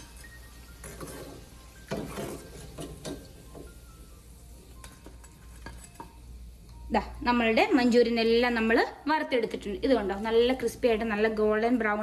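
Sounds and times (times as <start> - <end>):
metal spoon scraping frying pan: 0.0 - 3.4, 4.8 - 6.2
soft background music: 0.0 - 12.0.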